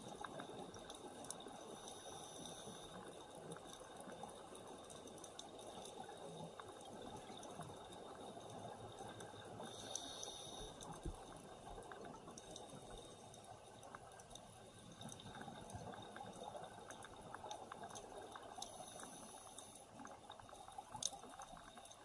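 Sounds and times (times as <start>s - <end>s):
underwater hiss: 1.4s - 3.2s, 9.3s - 11.1s, 18.2s - 21.0s.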